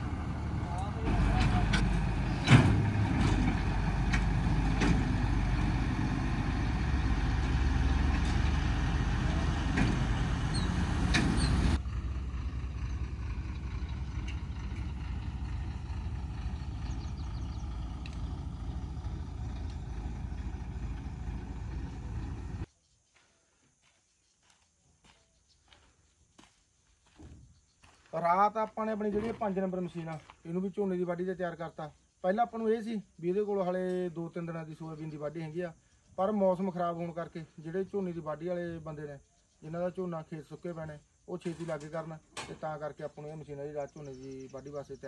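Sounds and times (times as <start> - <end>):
diesel engine idling: 0.0 - 22.7.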